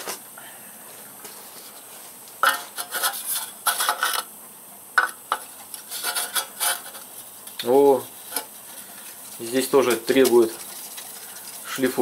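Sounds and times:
metal tools scraping on metal: 0:05.8 - 0:07.0.

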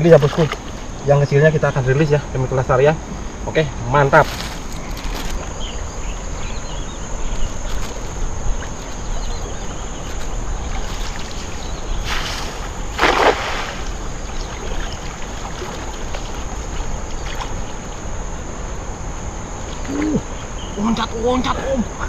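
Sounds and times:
water sloshing around legs: 0:10.0 - 0:17.8
net flung through air: 0:12.0 - 0:14.1
net splashing on water: 0:12.0 - 0:16.4.

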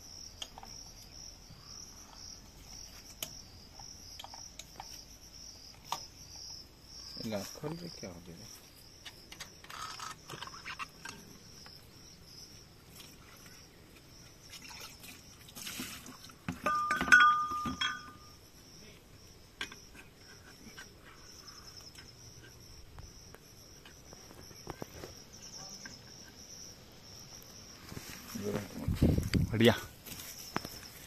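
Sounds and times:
insects chirring: 0:00.0 - 0:31.0
tools and metal canisters clicking: 0:16.5 - 0:18.2
metal clank: 0:16.6 - 0:18.2.

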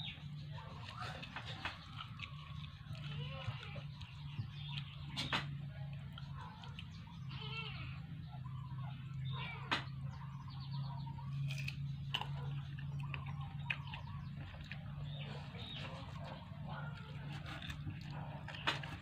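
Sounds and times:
chirping animal calls: 0:00.0 - 0:19.0
low hum: 0:00.0 - 0:19.0
person chewing food: 0:00.6 - 0:05.1, 0:11.2 - 0:19.0.

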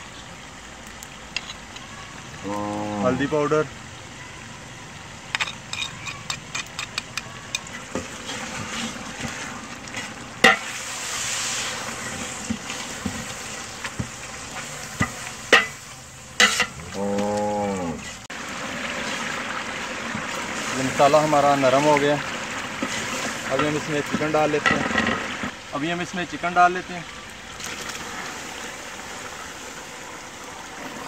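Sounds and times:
masala sizzling in a pot: 0:00.0 - 0:31.0
metal ladle clanking on pot: 0:15.0 - 0:15.8, 0:16.4 - 0:16.8.

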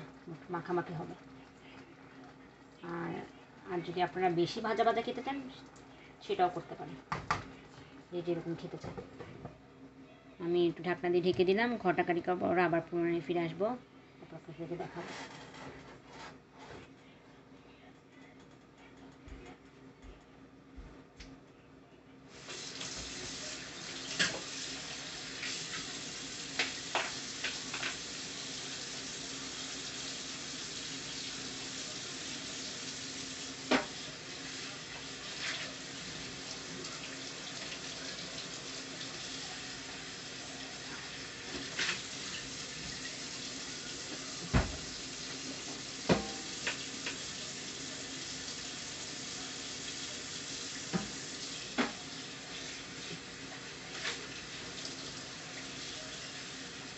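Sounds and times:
curry sizzling in a pan: 0:22.3 - 0:56.9.

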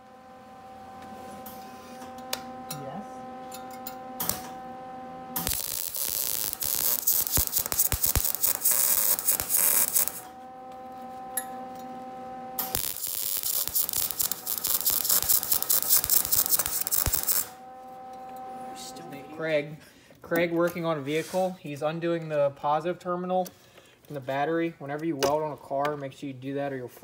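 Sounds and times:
steady hum: 0:00.0 - 0:22.5
welding arc crackling: 0:03.5 - 0:11.8, 0:12.6 - 0:17.6.

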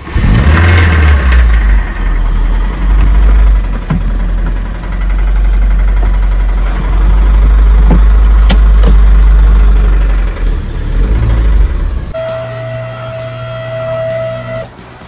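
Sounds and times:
car engine starting and idling: 0:00.0 - 0:15.0
engine clicking rattling knock: 0:00.5 - 0:12.1.

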